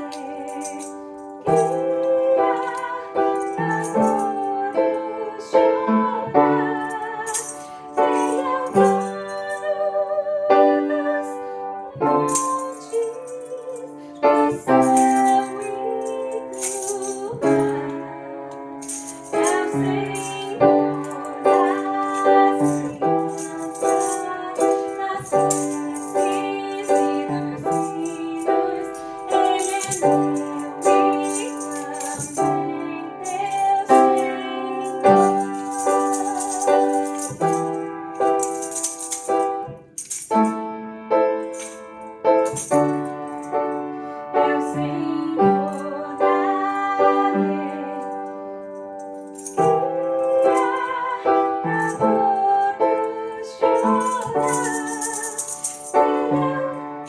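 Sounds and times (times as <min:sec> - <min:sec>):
handheld shaker rattling: 0:00.0 - 0:05.0, 0:06.4 - 0:09.8, 0:12.0 - 0:40.7, 0:41.4 - 0:43.9, 0:47.1 - 0:57.0
upright piano playing: 0:00.0 - 0:57.0.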